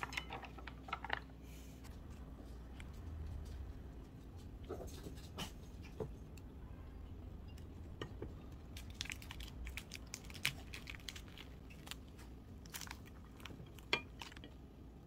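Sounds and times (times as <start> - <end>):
crispy crepe crunching: 8.6 - 14.6.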